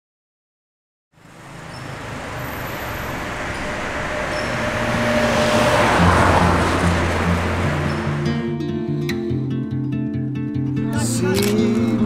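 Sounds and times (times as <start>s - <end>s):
distant city traffic: 1.2s - 9.6s.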